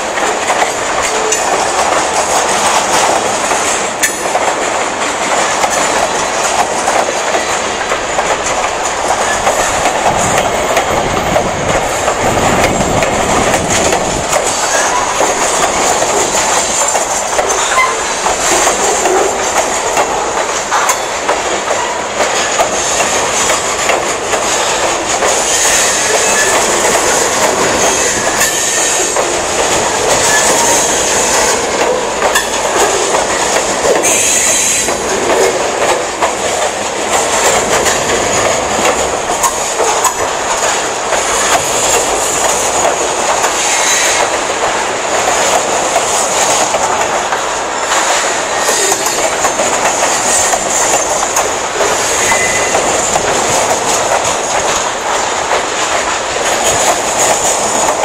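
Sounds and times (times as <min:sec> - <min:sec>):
train wheels clacking on rail joints: 0:00.0 - 0:58.0
high wheel squeal: 0:25.5 - 0:26.8, 0:34.0 - 0:34.9, 0:43.6 - 0:44.2, 0:52.0 - 0:52.8.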